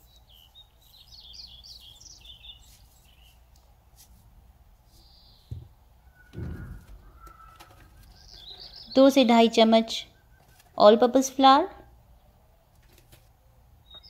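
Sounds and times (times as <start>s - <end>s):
small birds chirping: 0.0s - 14.0s
dull thump: 5.5s - 7.1s.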